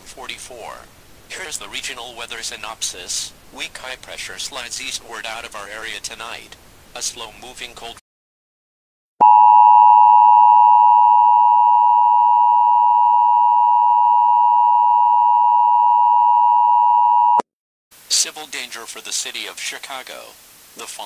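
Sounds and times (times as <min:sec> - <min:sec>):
two-tone electronic alarm: 0:09.2 - 0:17.4.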